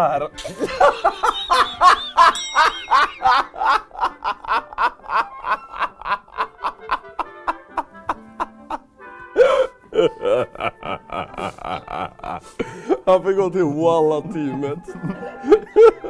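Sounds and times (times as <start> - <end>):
man laughing hard: 0.0 - 13.1, 14.5 - 16.0.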